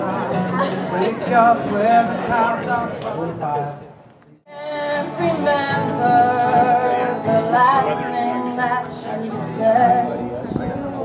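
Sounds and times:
acoustic guitar: 0.0 - 11.0
woman singing: 4.5 - 11.0.

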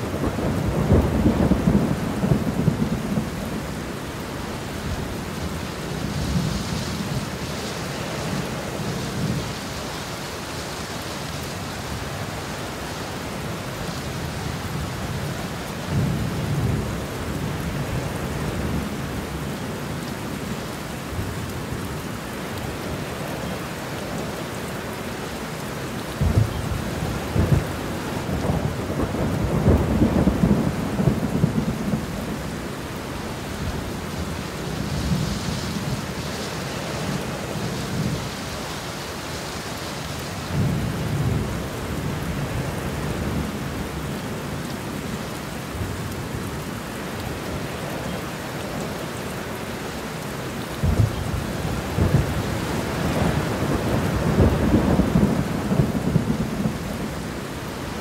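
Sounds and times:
heavy rain pouring: 0.0 - 58.0
thunder rumbling: 26.2 - 32.5, 50.8 - 57.3.

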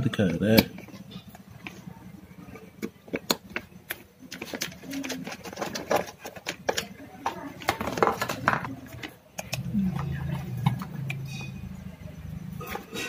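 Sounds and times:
plastic connectors clicking and rattling: 2.8 - 9.6.

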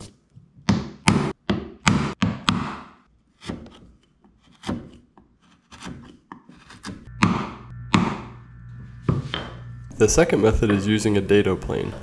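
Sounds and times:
chisel shaving wood: 3.3 - 7.1.

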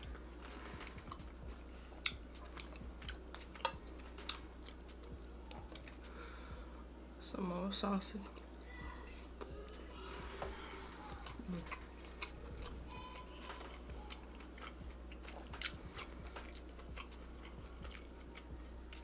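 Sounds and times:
chewing with wet mouth clicks: 0.8 - 6.0, 11.2 - 19.0.

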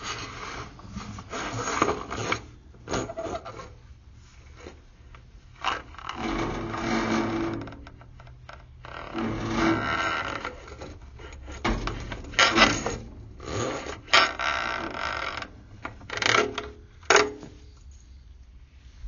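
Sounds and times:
push rod scraping in pipe: 0.0 - 3.8, 5.6 - 16.8.

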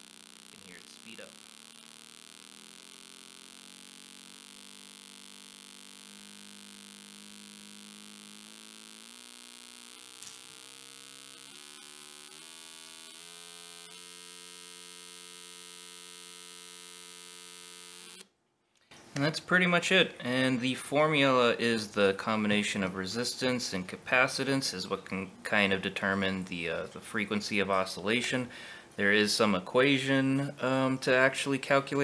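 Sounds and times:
buzzing tone from small speaker: 0.0 - 18.4.

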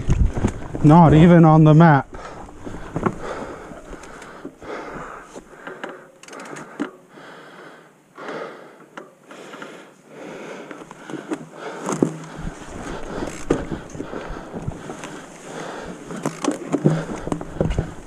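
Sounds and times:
bike clicks and rattles: 0.0 - 0.9, 2.1 - 7.0, 10.7 - 18.0
person breathing hard: 2.1 - 18.0.

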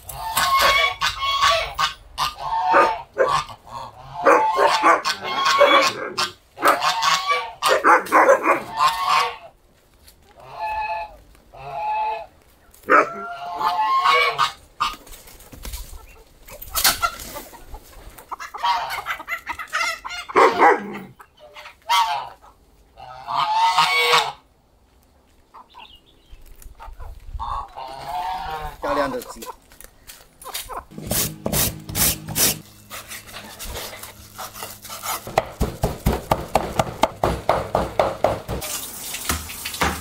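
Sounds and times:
geese honking: 0.0 - 9.5, 12.9 - 15.0, 18.3 - 24.5, 27.4 - 29.6.

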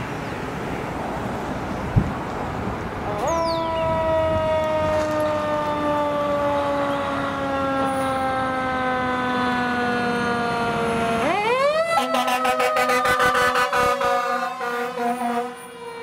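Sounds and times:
fire engine siren wailing: 3.0 - 16.0
fast pulsing siren: 3.2 - 16.0.

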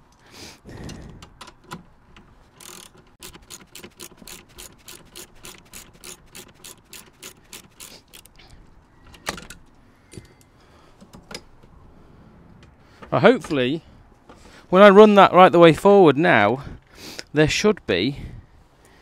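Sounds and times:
ratchet wrench clicking: 2.5 - 8.4.

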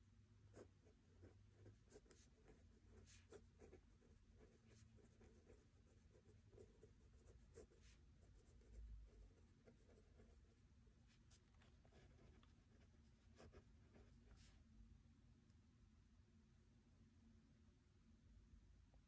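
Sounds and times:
pen scratching on paper: 0.5 - 10.6, 11.3 - 14.5.

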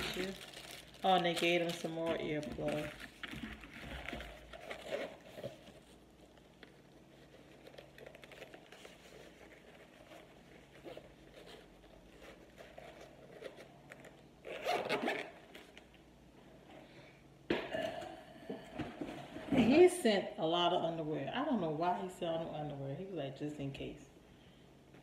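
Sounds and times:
zipper opening and closing: 14.4 - 15.7.

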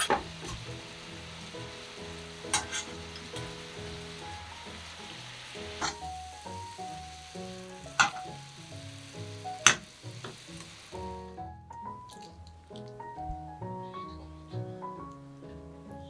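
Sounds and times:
patties sizzling in a frying pan: 0.0 - 13.0
metal spatula clinking on pan: 2.5 - 2.9.

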